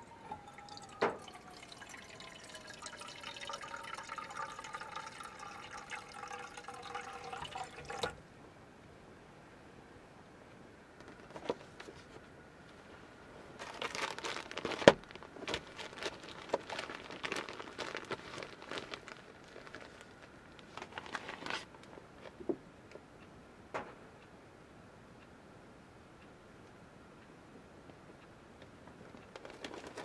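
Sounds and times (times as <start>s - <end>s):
plastic bags crinkling: 13.6s - 22.4s, 29.3s - 30.0s.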